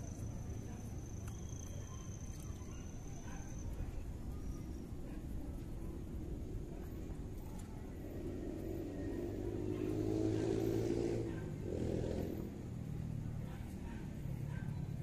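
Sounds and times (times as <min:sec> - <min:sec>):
vehicle engine passing: 0:07.9 - 0:13.4.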